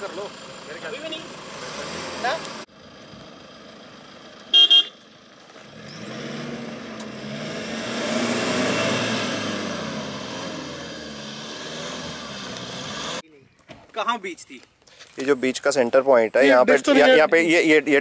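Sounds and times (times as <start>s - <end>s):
suv engines under load: 0.0s - 14.0s
car horn beep: 4.5s - 5.0s.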